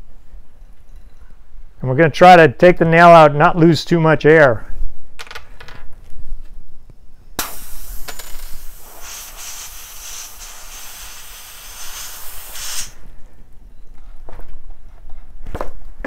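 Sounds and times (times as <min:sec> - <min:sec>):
air hissing from tire: 0:07.4 - 0:13.0.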